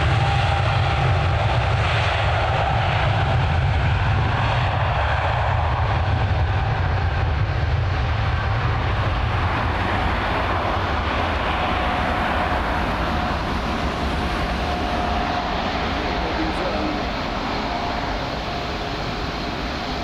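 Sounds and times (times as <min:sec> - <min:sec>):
jet engines rumbling at takeoff: 0:00.0 - 0:20.0
faint steady whine: 0:08.2 - 0:20.0.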